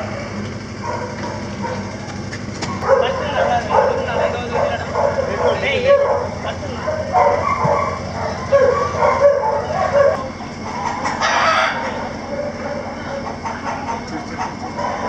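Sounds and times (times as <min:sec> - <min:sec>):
chickens clucking: 0:00.0 - 0:15.0
rooster crowing: 0:07.0 - 0:13.9.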